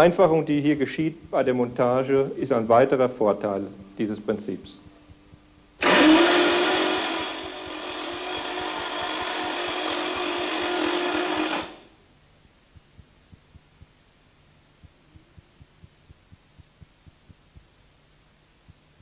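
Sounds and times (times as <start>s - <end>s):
faint regular ticking: 3.8s - 5.8s, 12.3s - 19.0s
engine running with high whine: 5.8s - 11.8s.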